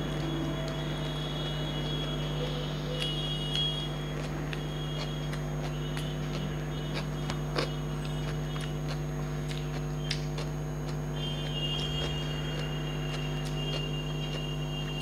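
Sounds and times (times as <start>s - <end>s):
chewing: 0.1s - 15.0s
fingers mixing rice: 2.1s - 15.0s.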